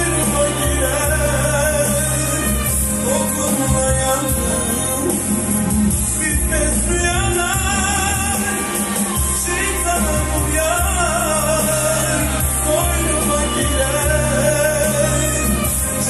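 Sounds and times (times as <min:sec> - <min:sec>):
pop song from a cassette: 0:00.0 - 0:16.0
steady bass line: 0:00.0 - 0:16.0.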